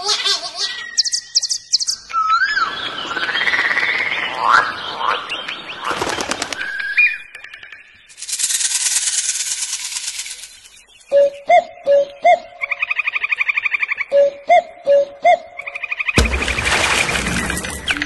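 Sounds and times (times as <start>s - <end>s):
birds whistling and chirping: 0.6s - 8.1s, 10.3s - 16.2s, 17.1s - 18.0s
loud rapid buzzing rattle: 8.1s - 10.8s.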